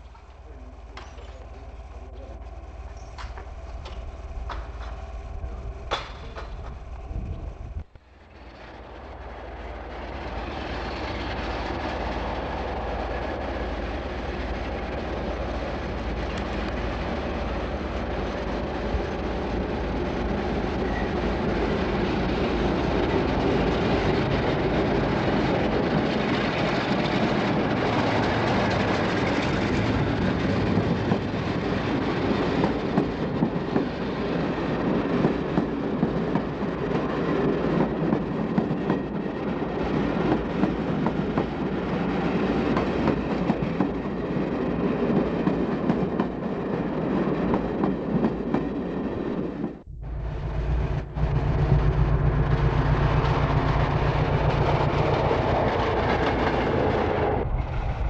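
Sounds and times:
diesel locomotive passing: 0.0s - 58.0s
train wheels clicking over rail joints: 2.9s - 8.7s, 23.3s - 48.8s.

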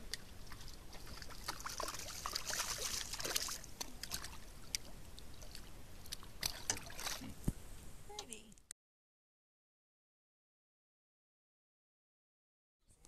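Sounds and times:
water dripping: 0.0s - 7.3s
fish splashing in water: 0.1s - 7.3s.

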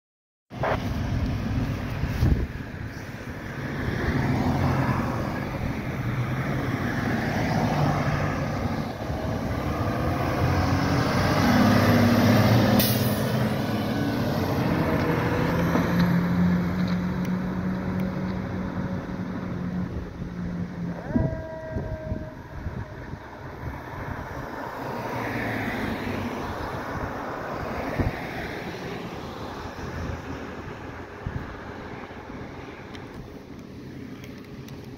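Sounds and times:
fire engine diesel engine revving: 5.6s - 20.1s.

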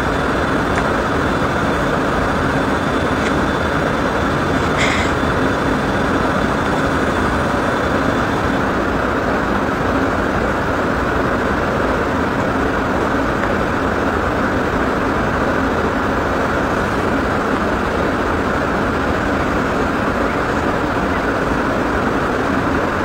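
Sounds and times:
car cabin road noise: 0.0s - 8.8s.

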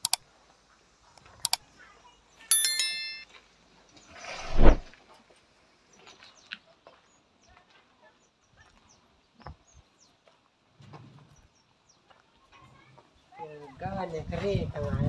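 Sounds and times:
small clicks: 0.0s - 0.2s.

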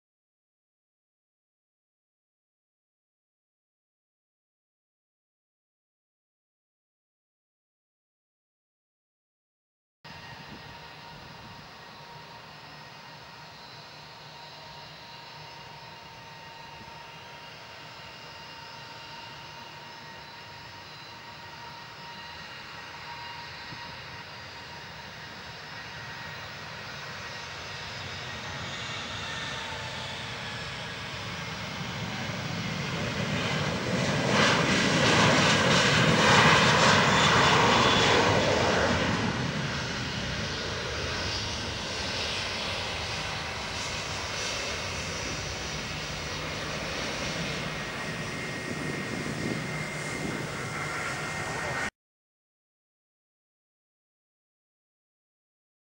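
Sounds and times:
jet engines at takeoff: 10.1s - 51.9s.

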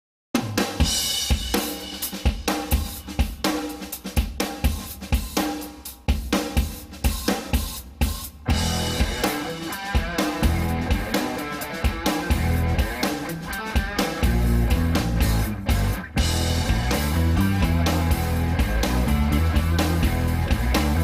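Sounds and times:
background music with drum beat: 0.4s - 21.0s
heavy bass: 8.5s - 11.4s, 12.2s - 13.3s, 14.0s - 21.0s.

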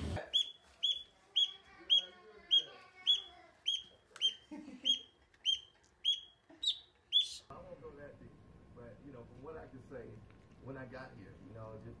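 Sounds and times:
duckling peeping: 0.2s - 7.5s.

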